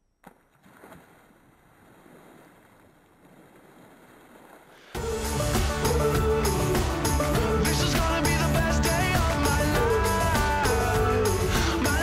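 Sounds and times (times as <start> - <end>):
splash into pool: 0.3 - 5.0
water churning: 0.6 - 12.0
loud music: 5.0 - 12.0.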